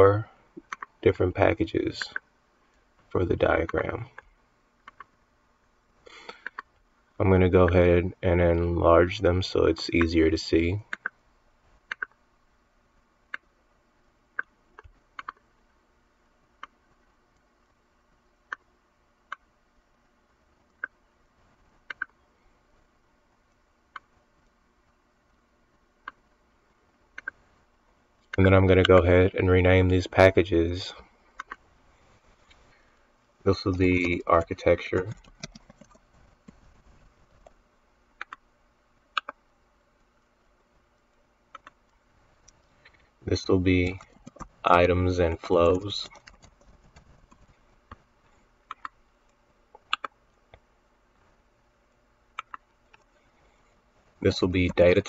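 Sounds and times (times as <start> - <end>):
computer mouse button clicking: 49.8 - 50.1.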